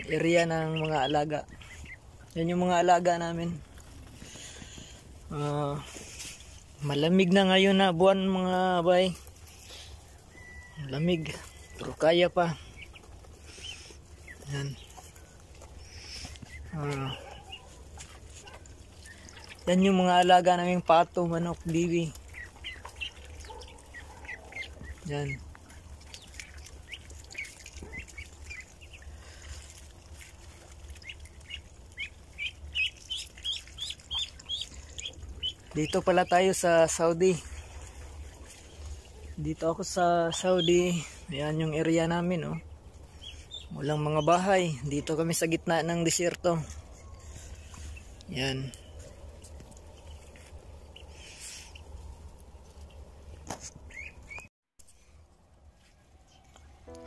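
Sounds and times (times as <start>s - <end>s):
ducklings and chicks peeping: 0.0s - 54.5s
faint bird chirps: 9.1s - 19.9s.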